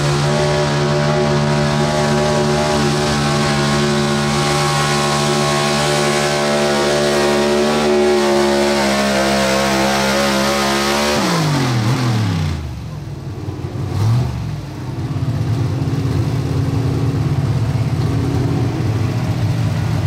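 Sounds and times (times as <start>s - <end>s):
truck engine at high revs: 0.0s - 20.0s.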